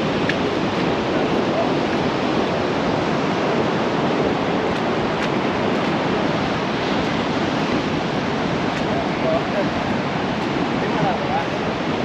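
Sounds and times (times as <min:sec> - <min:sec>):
ocean surf rushing: 0:00.0 - 0:12.0
wind: 0:00.0 - 0:12.0.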